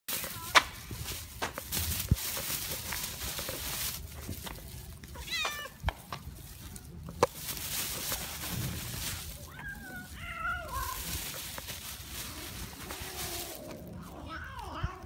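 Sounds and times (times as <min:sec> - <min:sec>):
cat meowing: 0:05.2 - 0:05.8, 0:09.4 - 0:11.1, 0:12.8 - 0:15.0.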